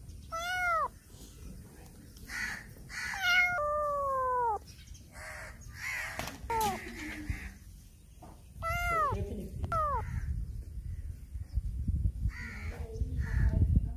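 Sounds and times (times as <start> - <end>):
kitten meowing loudly: 0.3 - 0.9, 3.0 - 4.6, 8.6 - 10.0
breathy kitten calls: 0.3 - 1.0, 3.0 - 4.6, 8.6 - 10.0.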